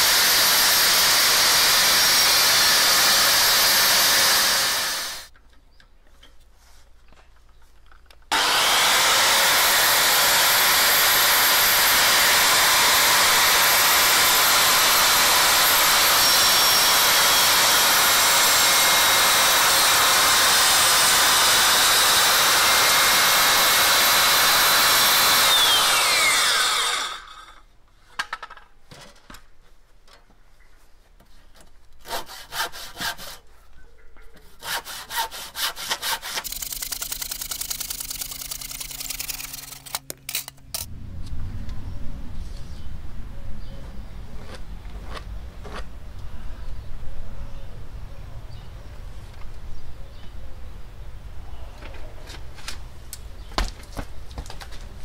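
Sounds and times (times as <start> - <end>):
circular saw cutting wood: 0.0 - 5.3, 8.3 - 27.7, 32.0 - 33.4, 34.6 - 40.9
handsaw rasping through wood: 8.3 - 27.5, 32.0 - 33.4, 34.5 - 37.7.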